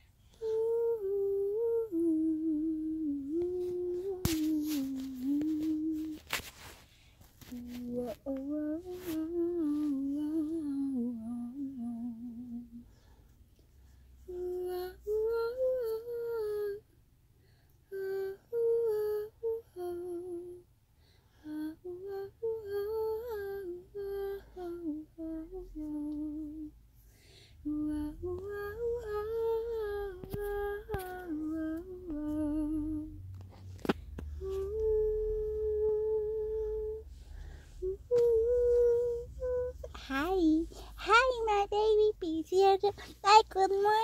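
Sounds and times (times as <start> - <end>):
woman humming a lullaby: 0.3 - 6.2, 7.4 - 12.9, 14.2 - 16.8, 17.9 - 20.7, 21.4 - 26.8, 27.6 - 33.3, 34.3 - 44.0.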